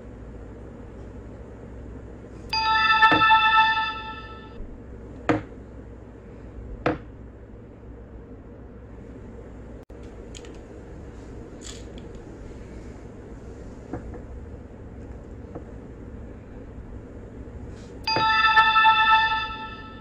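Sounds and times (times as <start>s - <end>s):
steady low background noise: 0.0s - 20.0s
bright chime tones: 2.5s - 4.6s, 18.1s - 20.0s.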